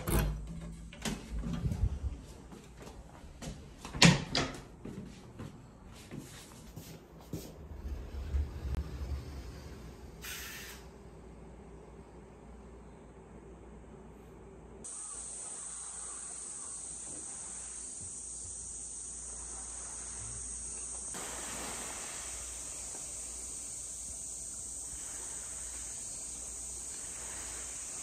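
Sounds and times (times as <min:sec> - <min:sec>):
high-pitched insect chorus: 0:14.9 - 0:28.0.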